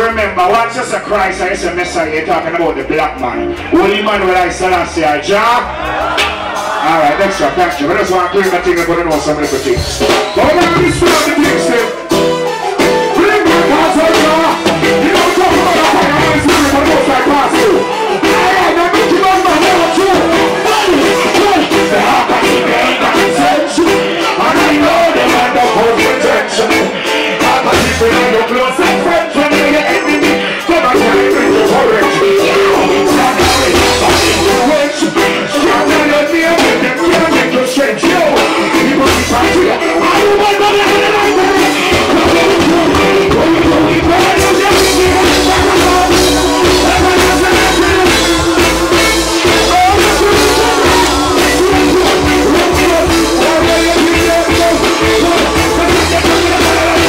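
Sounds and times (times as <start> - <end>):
bass guitar line: 0.0 - 57.0
live reggae band: 0.0 - 57.0
man singing into microphone: 13.0 - 57.0.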